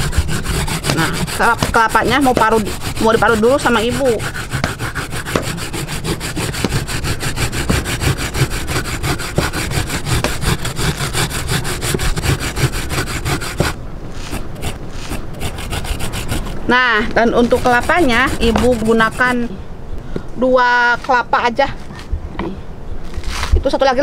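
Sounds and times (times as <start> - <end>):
coconut scraped on grater: 0.0 - 16.6, 17.4 - 19.5.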